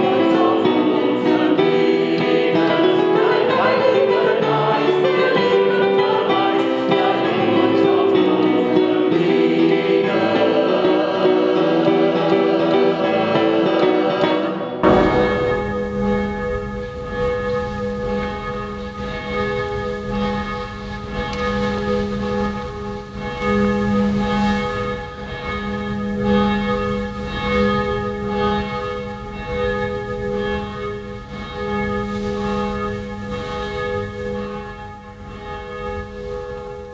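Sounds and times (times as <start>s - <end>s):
church bells pealing: 14.8s - 36.9s.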